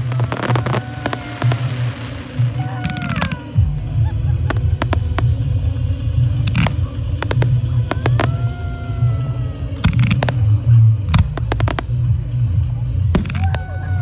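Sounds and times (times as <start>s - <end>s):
falling firework whistle: 0.0s - 3.5s
fireworks bangs and crackles: 0.0s - 14.0s
low rumble: 0.0s - 14.0s.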